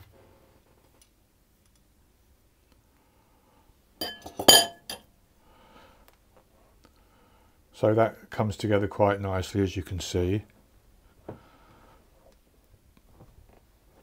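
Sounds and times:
mixing bowl clinking: 0:04.0 - 0:05.0
soft rustling: 0:12.1 - 0:14.0.

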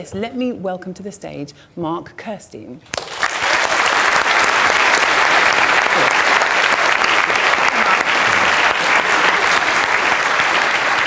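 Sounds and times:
large audience applauding: 0:03.0 - 0:11.0.

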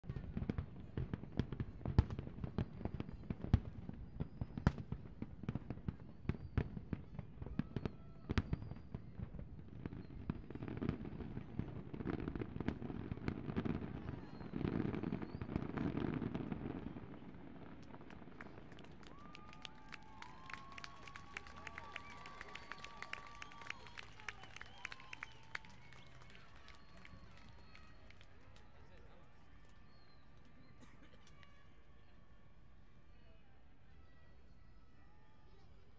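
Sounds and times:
fireworks bangs: 0:00.1 - 0:28.1.

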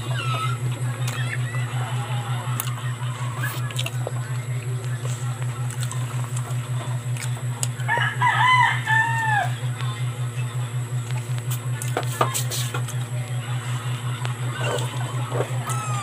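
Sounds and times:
rooster crowing: 0:07.8 - 0:09.7, 0:14.6 - 0:16.0.

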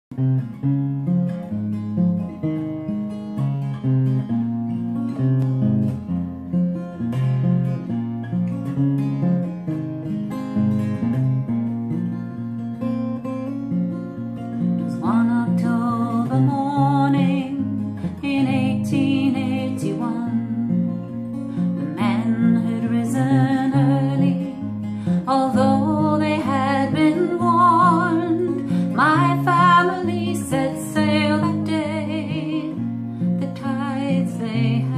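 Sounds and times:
acoustic guitar chords: 0:00.1 - 0:34.9
woman singing with vibrato: 0:14.9 - 0:20.6, 0:21.9 - 0:34.9.

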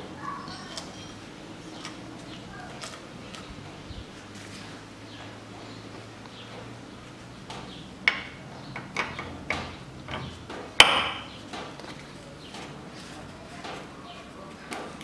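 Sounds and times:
metal strut parts knocking: 0:08.1 - 0:11.3.

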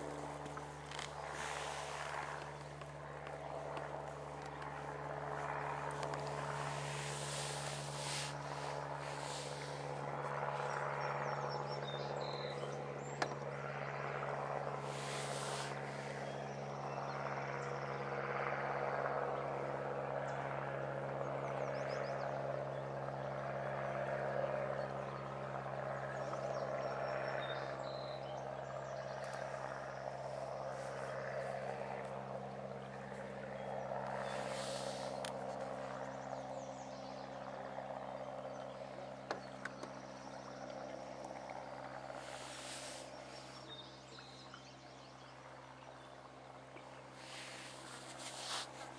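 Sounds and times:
steady low hum: 0:00.0 - 0:48.9.

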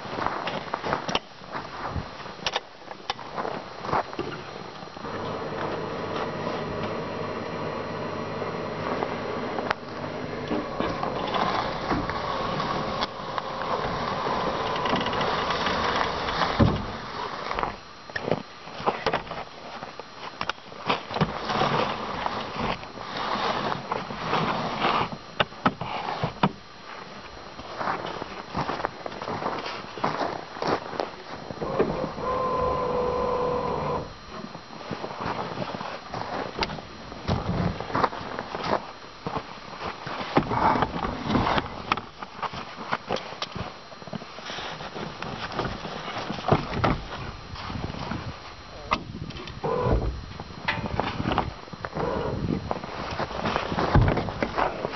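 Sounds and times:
heavy thump: 0:16.4 - 0:17.0.

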